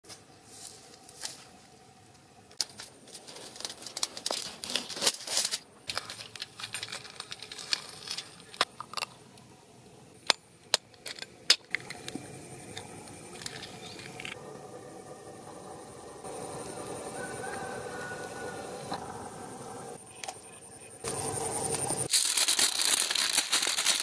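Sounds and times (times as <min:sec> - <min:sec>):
leaves rustling: 0:00.0 - 0:01.8, 0:02.6 - 0:08.7, 0:21.1 - 0:24.0.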